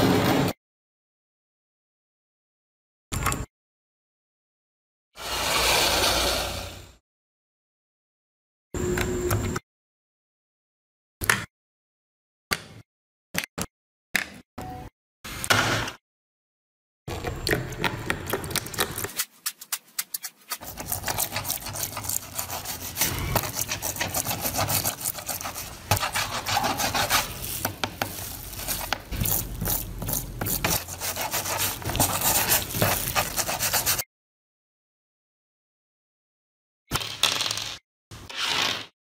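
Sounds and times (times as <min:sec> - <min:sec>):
brush scrubbing metal in water: 0:19.0 - 0:34.0.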